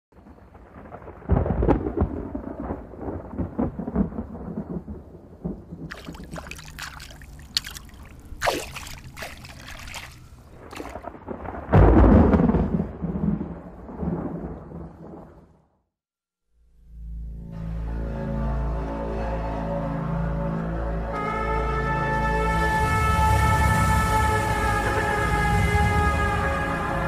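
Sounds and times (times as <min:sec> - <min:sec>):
thunder rumbling and crackling: 0:00.1 - 0:06.6, 0:10.2 - 0:15.7.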